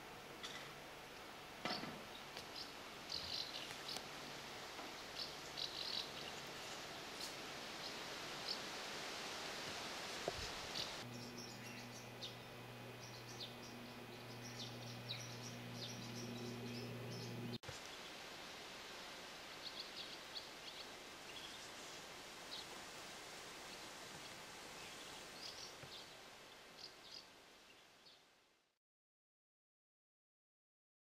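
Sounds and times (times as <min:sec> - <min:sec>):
faint outdoor hiss: 0:00.0 - 0:28.8
steady low hum: 0:10.5 - 0:17.6
swallows twittering: 0:10.7 - 0:17.6.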